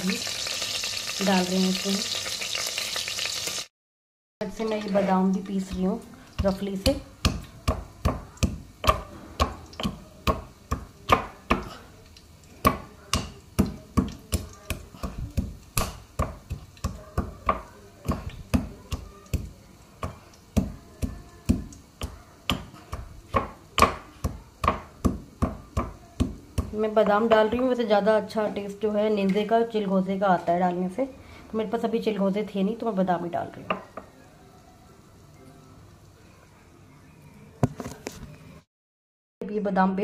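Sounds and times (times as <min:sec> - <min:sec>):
pestle pounding in a mortar: 0:06.4 - 0:11.8, 0:12.6 - 0:27.6.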